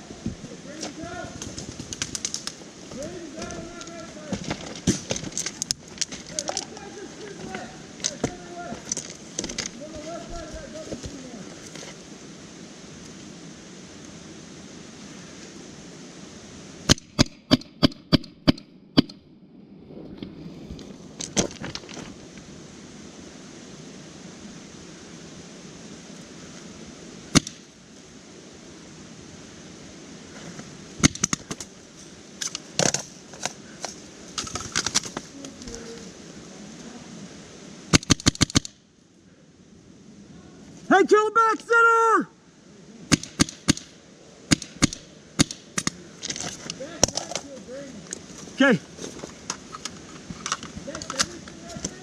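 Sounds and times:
paintball marker firing: 43.1s - 43.9s, 44.5s - 46.0s.

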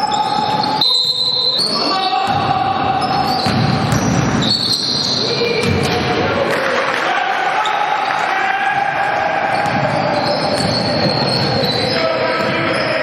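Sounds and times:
sneakers squeaking on wooden floor: 0.0s - 5.9s, 9.5s - 13.0s
basketball bouncing: 2.3s - 4.9s, 5.5s - 6.2s, 8.8s - 12.8s.

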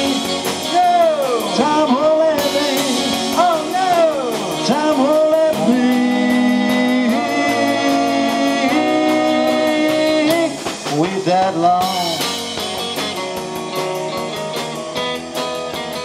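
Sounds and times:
electric guitar lead line: 0.0s - 16.0s
rock band playing: 0.0s - 16.0s.

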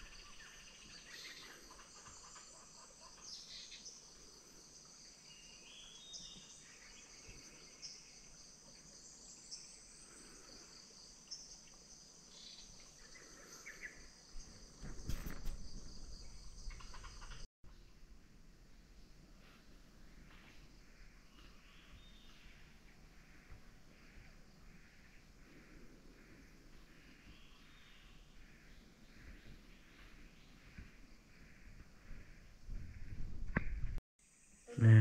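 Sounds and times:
insects droning: 0.0s - 17.5s, 18.8s - 33.3s, 34.2s - 35.0s.

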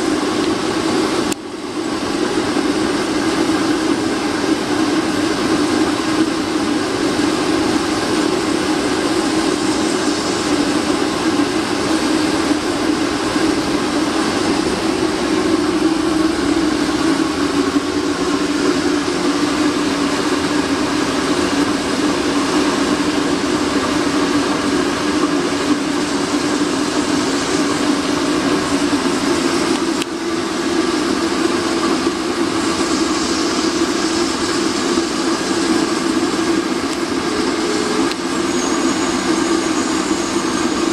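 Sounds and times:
oil burner roaring: 0.0s - 40.9s
strong even hum: 10.0s - 38.4s.

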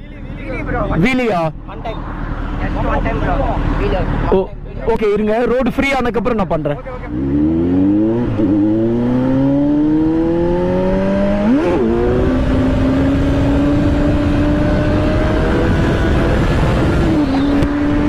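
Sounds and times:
motorcycle engine accelerating: 6.8s - 18.0s
wind rush on microphone: 10.6s - 18.0s.

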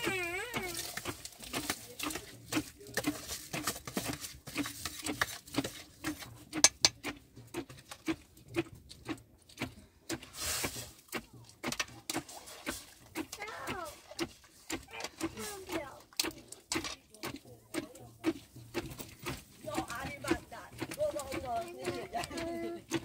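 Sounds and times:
irregular knocks and taps: 1.0s - 10.2s, 11.1s - 23.0s.

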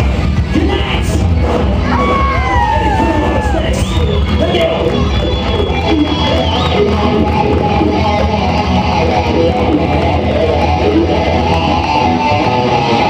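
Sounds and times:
rock band playing: 0.0s - 13.0s
strummed electric guitar: 0.0s - 13.0s.

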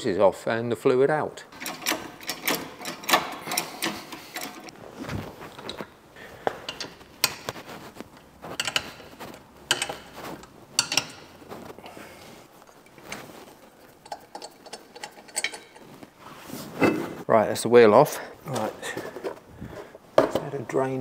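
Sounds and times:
trolley jack clicking: 1.6s - 4.7s
wheel brace clanking on nuts: 1.6s - 4.8s, 5.4s - 16.0s.

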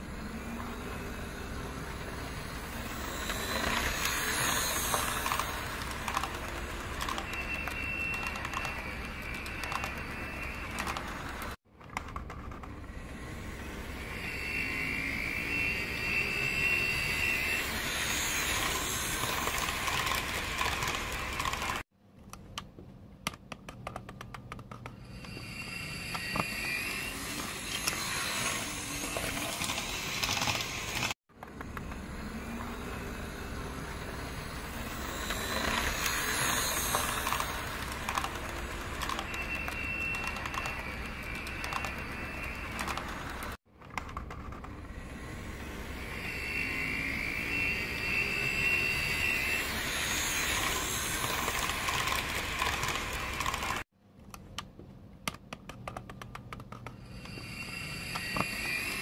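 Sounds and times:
model train hum: 0.0s - 11.6s, 12.7s - 21.8s, 25.2s - 43.6s, 44.6s - 53.8s
model train wheels clicking: 0.2s - 12.9s, 14.9s - 21.8s, 27.2s - 44.8s, 46.9s - 53.8s.

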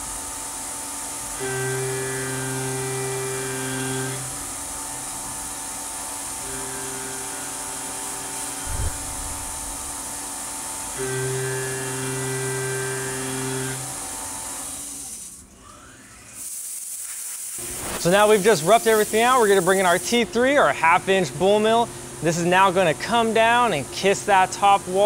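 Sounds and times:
milling spindle humming: 1.4s - 4.4s, 6.4s - 14.0s
low thump: 8.6s - 10.0s
spray hissing: 16.4s - 20.1s.

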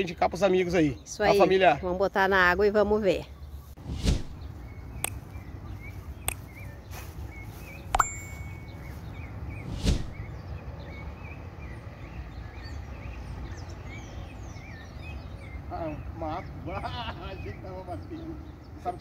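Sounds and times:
faint bird chirping: 0.7s - 19.0s
whoosh: 3.8s - 4.4s, 9.6s - 10.2s
button clicks: 7.9s - 8.8s
bell-like ding: 8.0s - 8.9s.

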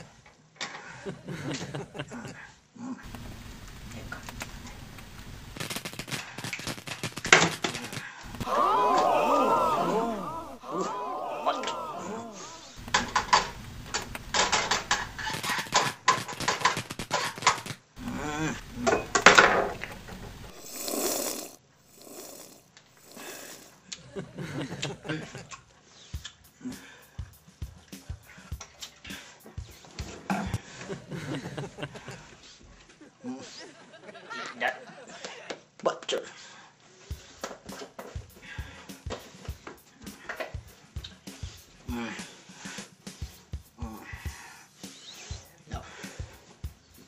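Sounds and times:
stovetop sizzling: 3.0s - 7.5s, 12.7s - 15.6s, 18.0s - 23.7s
pans crackling and clacking: 3.1s - 9.6s, 12.7s - 21.6s
man making vocal noises: 7.8s - 13.4s, 18.0s - 23.7s, 41.8s - 42.4s, 43.8s - 44.3s
breathy exhale hiss: 20.4s - 23.8s.

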